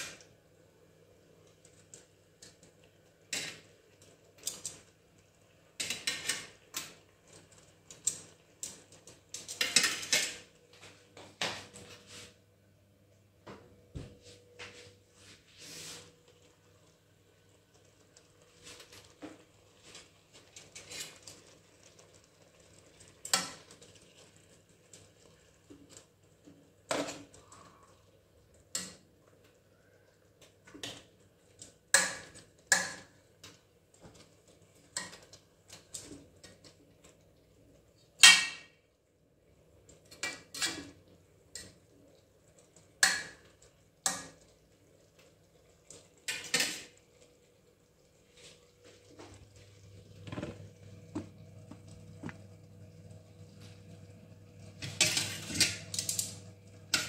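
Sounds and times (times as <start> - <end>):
tongs clattering onto steel plate: 9.4 - 10.4, 46.2 - 46.9, 54.8 - 57.0.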